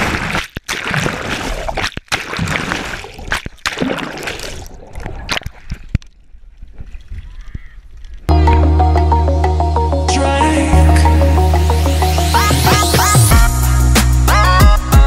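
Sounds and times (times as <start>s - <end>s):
water churning and gurgling: 0.0s - 7.4s
water splashes: 0.0s - 8.0s.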